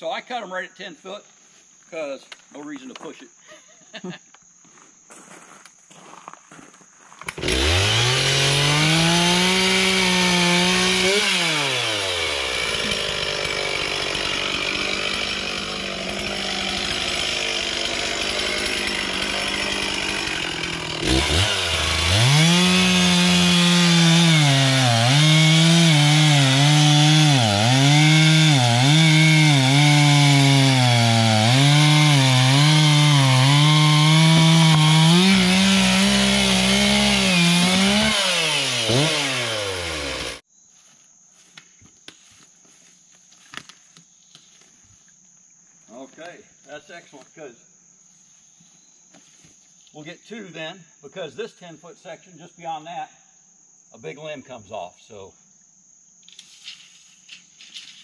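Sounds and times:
chainsaw revving and cutting wood: 7.3s - 40.5s.

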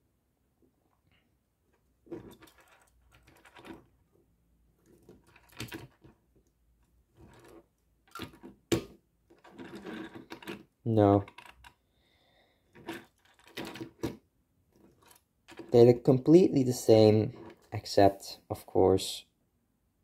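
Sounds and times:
toy cars rolling on tabletop: 1.8s - 4.1s, 4.8s - 6.5s, 7.1s - 8.6s, 9.3s - 11.8s, 12.6s - 16.0s, 17.2s - 17.8s.

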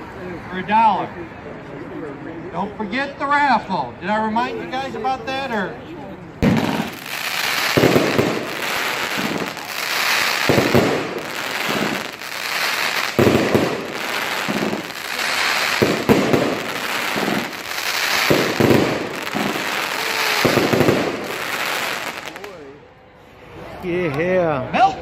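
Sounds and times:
firework crackling: 6.4s - 22.6s.

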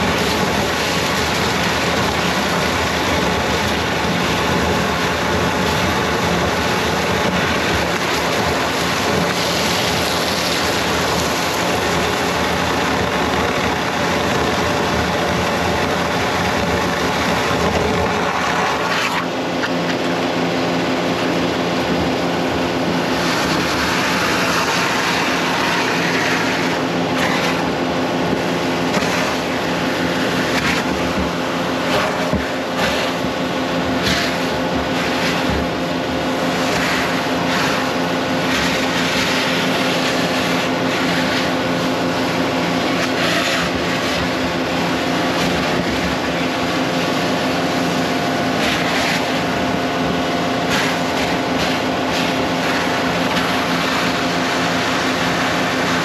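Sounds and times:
pump drone and hiss: 0.0s - 56.0s
high-pressure hose spraying: 33.8s - 56.0s.

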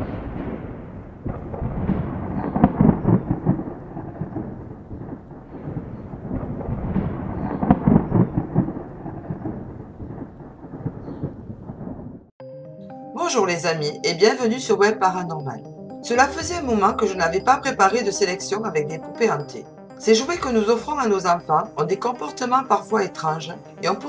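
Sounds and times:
thunder rolling: 0.0s - 12.3s, 16.2s - 18.6s.

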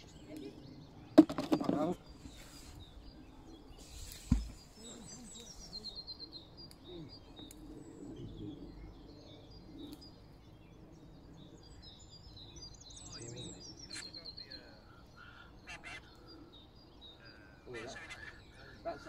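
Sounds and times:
birds chirping and singing: 0.0s - 19.0s
faint outdoor background noise: 0.0s - 19.0s
sharp thump: 4.2s - 4.6s.

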